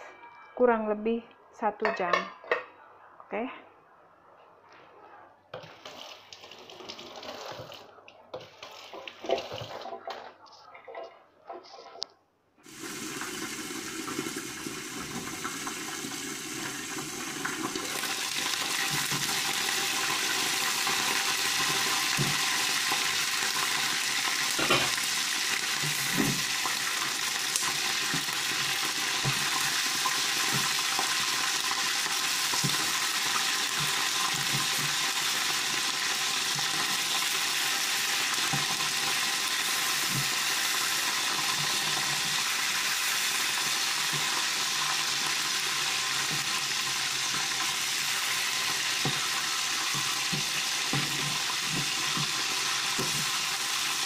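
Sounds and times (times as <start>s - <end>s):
chicken sizzling in hot oil: 12.6s - 54.0s.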